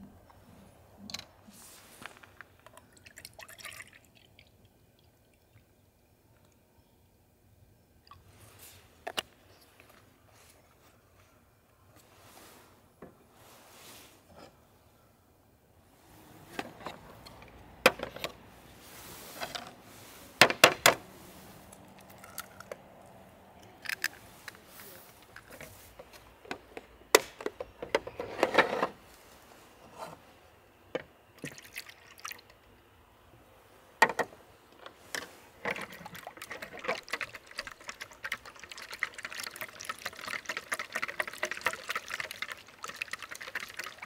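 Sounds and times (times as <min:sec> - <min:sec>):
milk pouring into bowl: 0:35.8 - 0:44.0.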